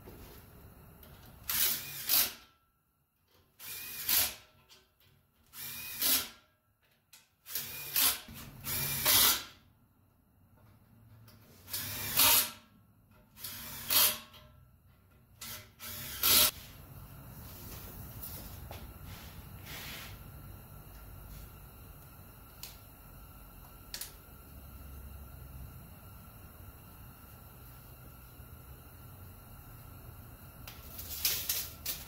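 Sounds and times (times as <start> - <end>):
cordless drill bursts: 3.6 - 4.4, 5.5 - 6.3, 7.5 - 9.5, 11.7 - 12.5, 15.5 - 16.5.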